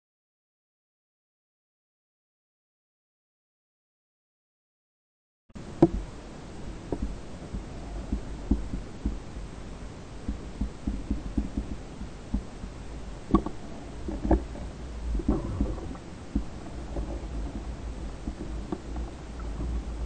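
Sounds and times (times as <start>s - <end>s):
underwater rumble of moving water: 5.6s - 20.0s.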